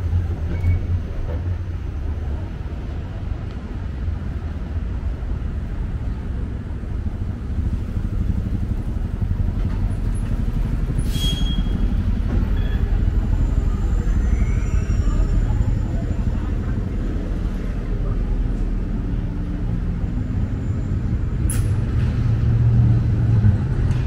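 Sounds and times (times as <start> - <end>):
traffic rumble: 0.0 - 24.0
brief high squeal: 11.0 - 16.1.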